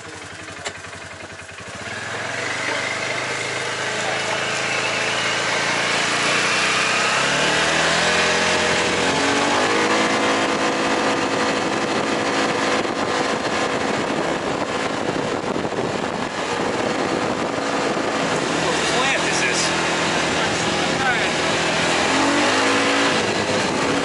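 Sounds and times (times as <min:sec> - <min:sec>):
utility vehicle engine pulling away: 0:00.0 - 0:24.0.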